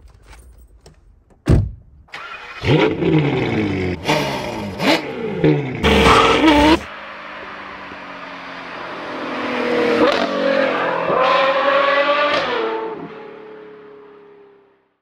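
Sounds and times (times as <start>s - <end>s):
car engine revving: 2.2s - 13.3s
car accelerating past: 4.0s - 14.5s.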